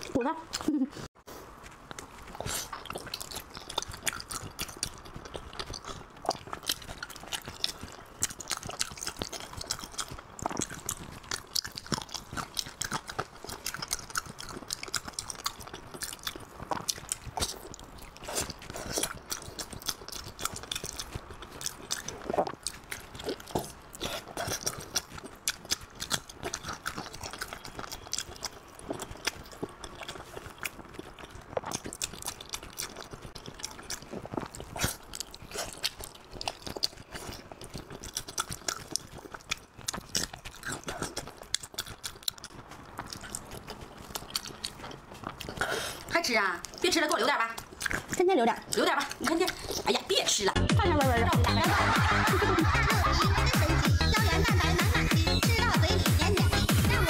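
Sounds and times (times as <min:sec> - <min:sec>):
close chewing and mouth clicks: 0:00.0 - 0:57.0.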